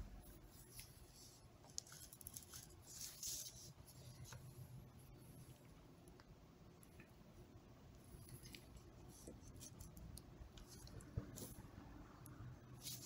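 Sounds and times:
paper rustle: 0:00.5 - 0:04.5.

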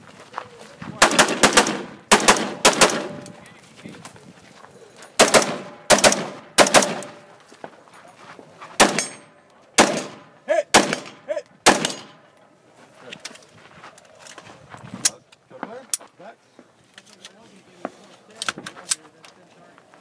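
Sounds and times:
rifle shots with echo: 0:01.0 - 0:03.4, 0:05.2 - 0:07.3, 0:08.8 - 0:12.3.

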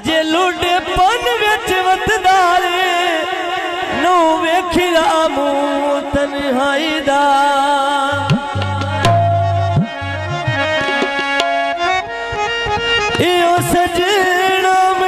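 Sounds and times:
reed-keyboard melody: 0:08.0 - 0:15.0
long wavering note: 0:09.0 - 0:10.4.

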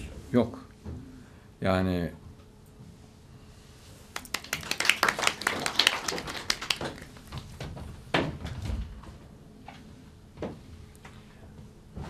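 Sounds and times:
people clapping: 0:04.1 - 0:07.5.

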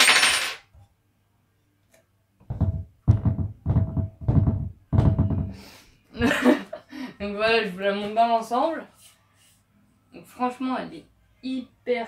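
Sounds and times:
dull metal knocks: 0:02.4 - 0:05.6.

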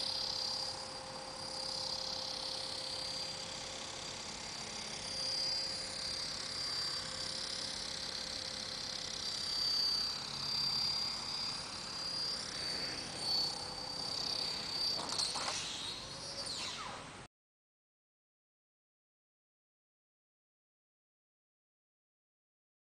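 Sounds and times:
rc helicopter rotor whine: 0:00.0 - 0:17.3.

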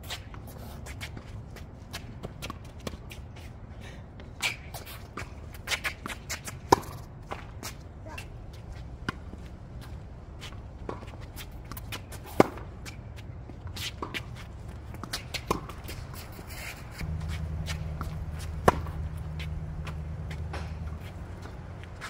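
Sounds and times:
rackets striking tennis ball: 0:04.4 - 0:07.8, 0:10.8 - 0:13.1, 0:13.7 - 0:22.0
shoe scuffs: 0:15.1 - 0:22.0
low steady rumble: 0:17.0 - 0:22.0.

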